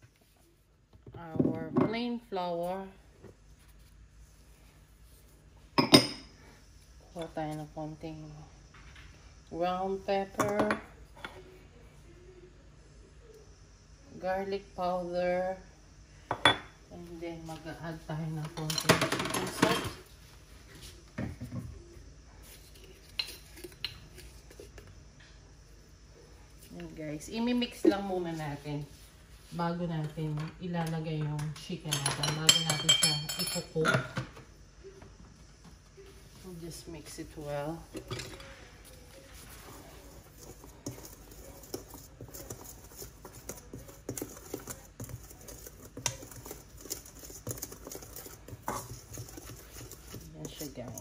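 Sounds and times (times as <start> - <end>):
utensils clinking on metal bowl: 31.4 - 34.2, 40.3 - 51.0.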